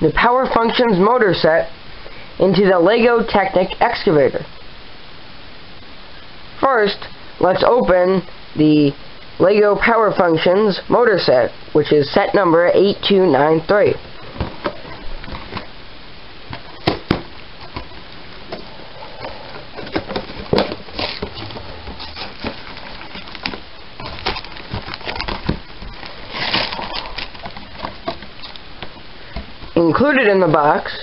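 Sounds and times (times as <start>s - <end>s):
plastic bags crinkling: 16.5s - 29.8s
cardboard box crackling and tearing: 19.3s - 29.0s.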